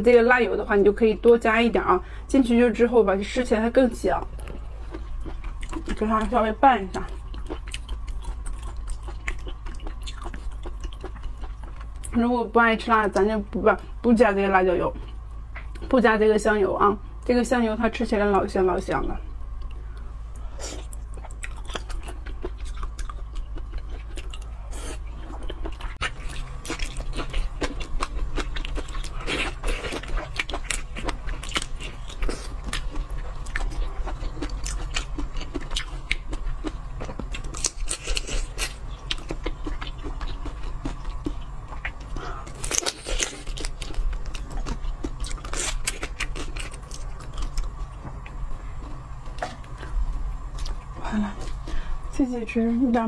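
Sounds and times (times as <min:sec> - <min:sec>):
chewing shrimp: 0:04.2 - 0:12.2, 0:19.6 - 0:51.9.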